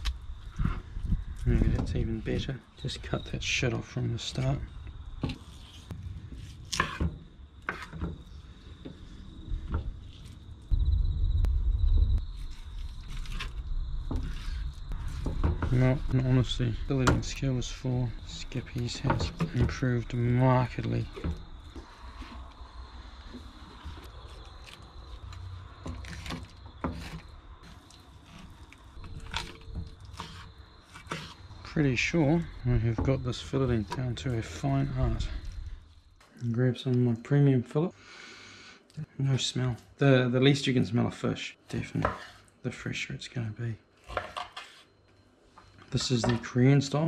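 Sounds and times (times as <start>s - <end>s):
insects trilling: 0.0s - 42.3s
knife knocks and scrapes on board: 6.7s - 8.2s, 29.1s - 31.4s, 42.0s - 42.4s, 44.1s - 44.8s
low rumble: 9.2s - 15.3s
loud low rumble: 10.7s - 12.5s.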